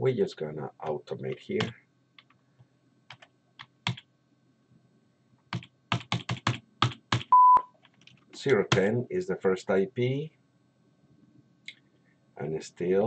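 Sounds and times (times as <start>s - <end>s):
typing on computer keyboard: 3.1s - 4.0s, 5.5s - 8.9s
short high beep: 7.4s - 7.6s.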